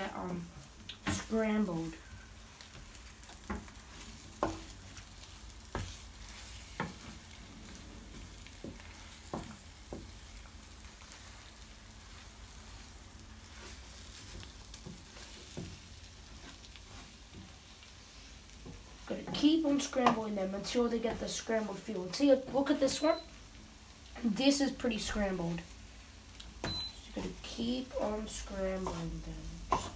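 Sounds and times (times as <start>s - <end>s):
eggs sizzling in a frying pan: 0.0s - 29.9s
spatula scraping pan: 1.0s - 10.4s, 26.7s - 29.9s.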